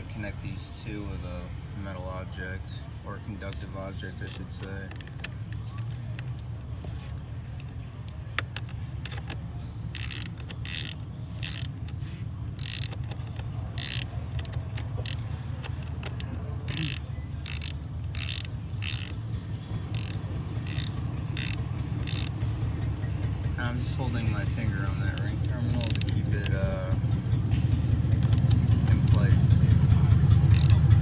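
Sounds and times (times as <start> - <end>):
ratchet wrench clicking: 4.6 - 5.3, 8.0 - 22.5, 25.1 - 26.6, 28.1 - 29.6, 30.3 - 31.0.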